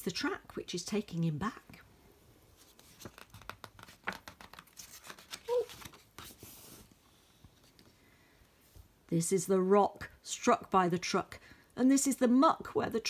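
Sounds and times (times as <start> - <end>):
paper page rustling: 2.6 - 7.8.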